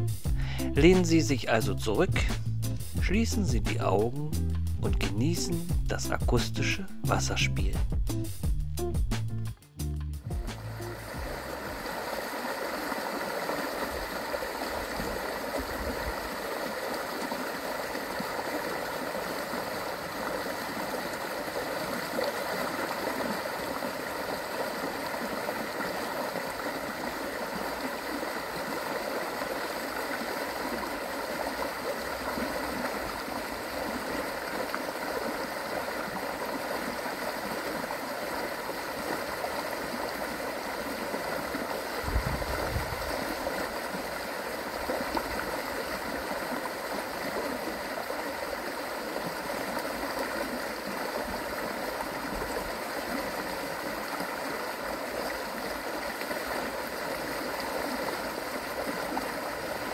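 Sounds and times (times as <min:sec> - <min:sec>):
river water rushing: 0:10.6 - 0:59.9.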